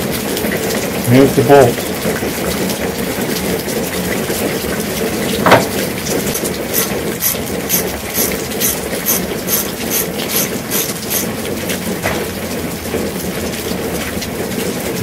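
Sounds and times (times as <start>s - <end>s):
ratchet wrench clicking: 6.7s - 11.3s.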